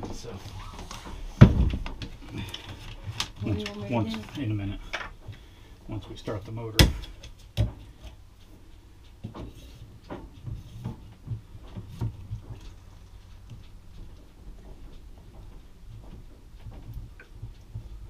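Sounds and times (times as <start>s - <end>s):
soft knocks and rubbing: 9.2s - 18.0s.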